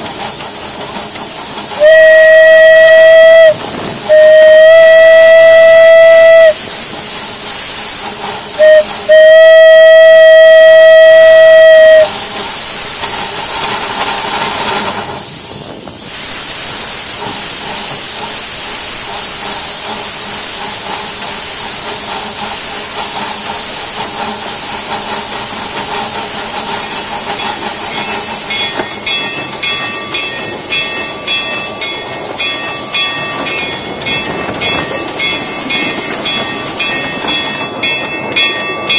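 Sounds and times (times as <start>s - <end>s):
steam hiss and rail noise: 0.0s - 38.9s
steam locomotive whistle: 1.7s - 6.9s, 8.0s - 12.5s.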